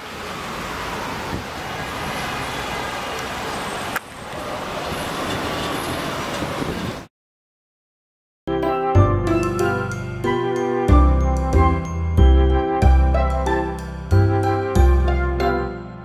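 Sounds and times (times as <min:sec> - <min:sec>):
passing cars: 0:00.0 - 0:07.1
street hum: 0:00.0 - 0:07.1.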